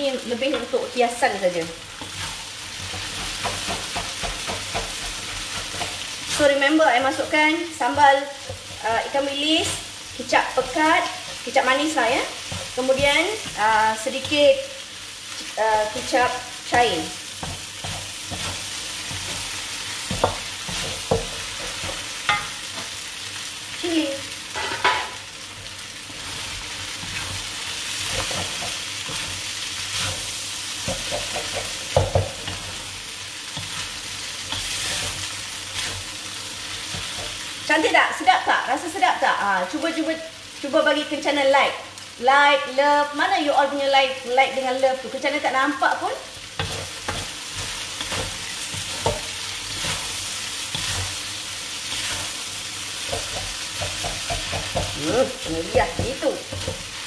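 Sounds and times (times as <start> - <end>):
noodles sizzling in a wok: 0.0 - 57.0
spatula scraping a wok: 1.5 - 23.2, 24.4 - 37.7, 46.3 - 57.0
spatula knocking against wok: 2.9 - 5.9, 20.0 - 22.6, 53.1 - 56.8.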